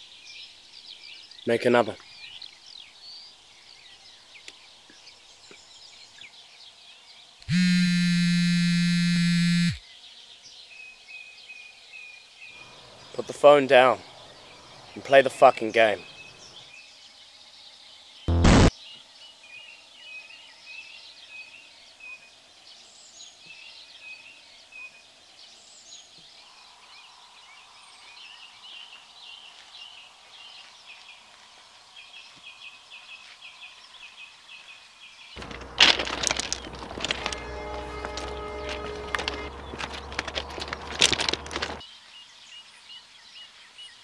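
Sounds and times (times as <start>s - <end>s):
digital glitch static: 18.3s - 18.7s
music with sustained notes: 35.4s - 41.8s.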